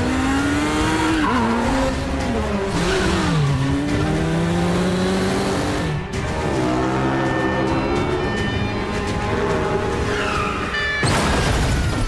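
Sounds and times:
motorcycle engine revving: 0:00.0 - 0:08.3.

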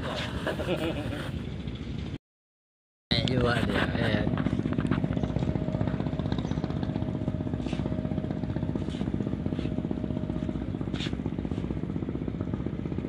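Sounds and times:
small boat engine puttering: 0:03.1 - 0:13.0.

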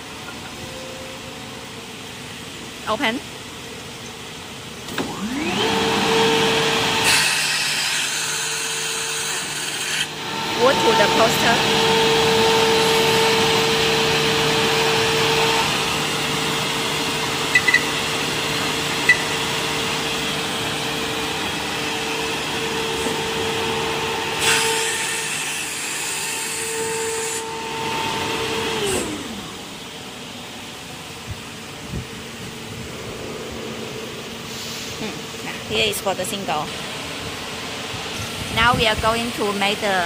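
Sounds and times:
machine motors whining: 0:04.8 - 0:07.6, 0:08.2 - 0:30.6.

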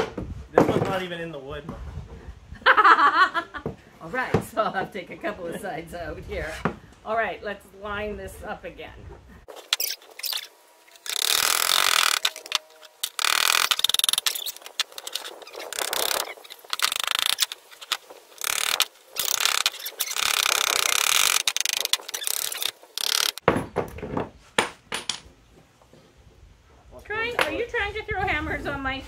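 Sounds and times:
nails creaking out of wood: 0:09.5 - 0:24.1.

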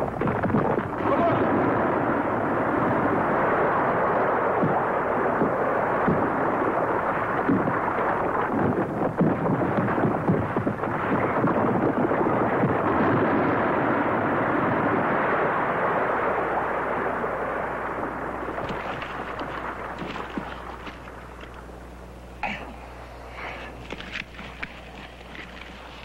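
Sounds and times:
rocks sliding and tumbling: 0:18.4 - 0:21.7, 0:23.4 - 0:26.0.

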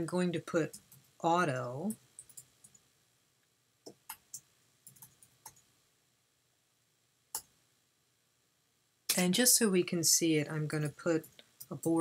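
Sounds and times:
computer keyboard keys clicking: 0:03.9 - 0:05.6.

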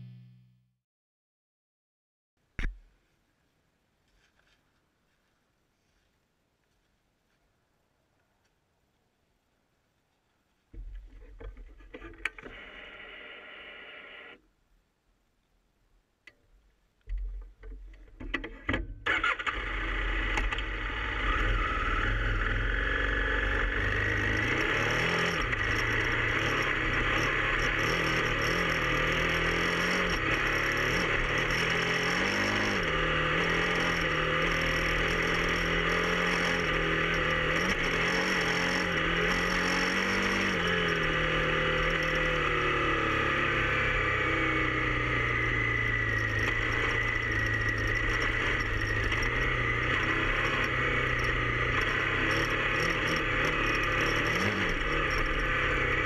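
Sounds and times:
motorcycle engine starting and running: 0:17.1 - 0:56.0.

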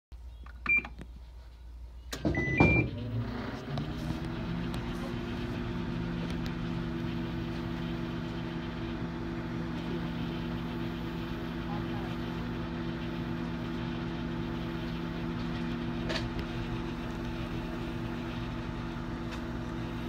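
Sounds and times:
microwave beeps: 0:00.6 - 0:01.0, 0:02.1 - 0:03.4
microwave humming: 0:02.0 - 0:20.0.

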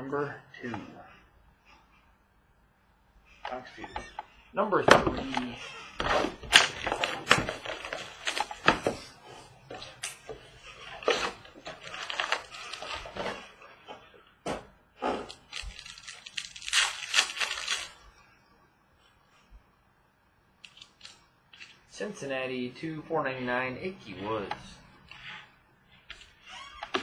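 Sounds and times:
cardboard ripping: 0:05.1 - 0:09.1, 0:10.6 - 0:13.6, 0:15.1 - 0:18.0
foil wrappers crinkling: 0:05.2 - 0:09.1, 0:09.7 - 0:13.6, 0:15.3 - 0:18.1.

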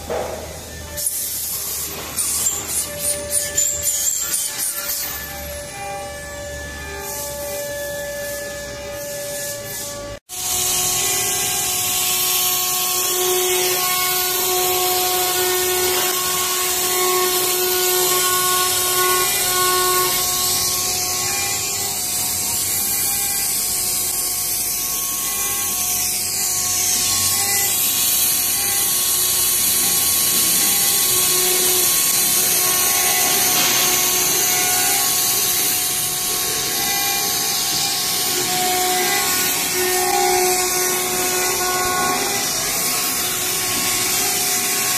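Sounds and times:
high-pitched spindle tones: 0:00.0 - 0:44.9
loud steady hiss: 0:25.9 - 0:44.9.

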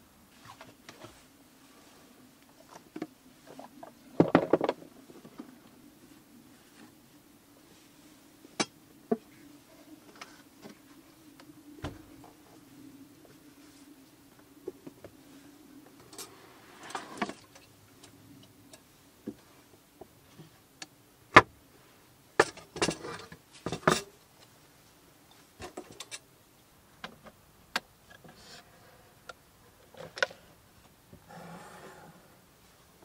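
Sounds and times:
clicks and knocks of wood and metal: 0:04.2 - 0:05.5, 0:22.4 - 0:24.5.

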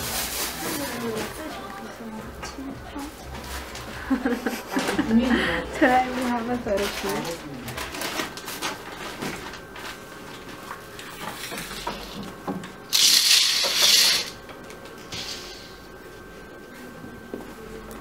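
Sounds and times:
plastic rustling: 0:00.0 - 0:01.7, 0:05.8 - 0:12.3.

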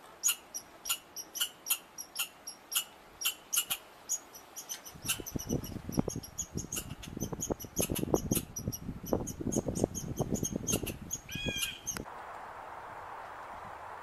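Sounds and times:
squirrel chipping calls: 0:00.2 - 0:12.0
squirrel squeal: 0:00.2 - 0:12.0
wind on microphone: 0:04.8 - 0:12.1.

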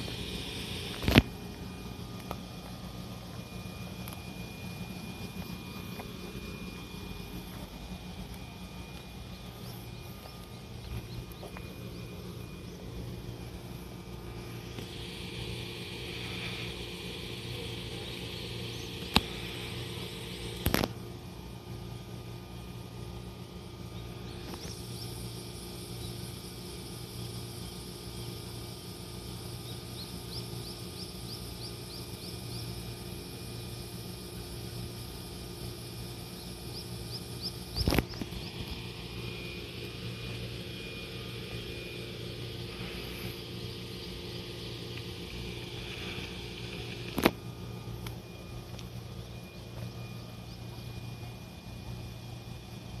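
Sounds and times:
electric train equipment hum: 0:00.0 - 0:53.0
high insect buzz: 0:00.0 - 0:53.0.

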